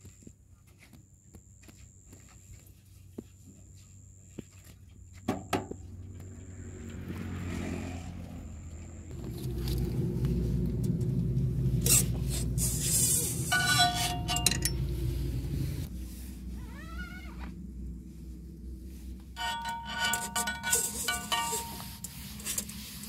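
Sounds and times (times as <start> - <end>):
diesel engine rumbling: 5.6 - 23.0.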